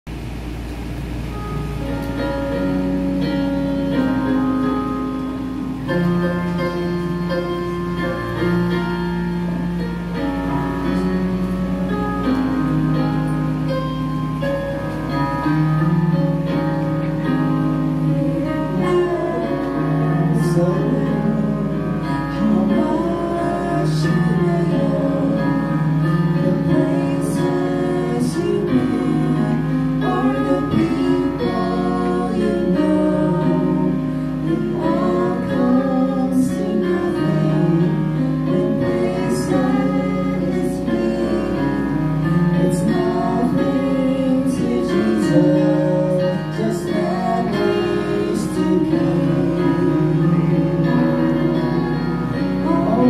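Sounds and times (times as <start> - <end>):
instrumental accompaniment: 0.1 - 53.0
woman singing gospel song: 18.0 - 53.0.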